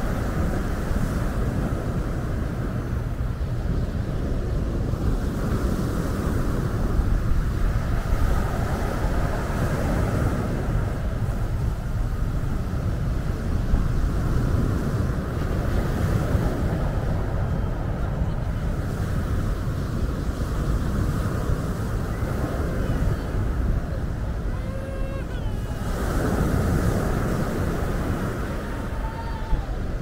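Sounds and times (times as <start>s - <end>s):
wind rumble on microphone: 0.0s - 30.0s
waves on pebble beach: 13.1s - 30.0s.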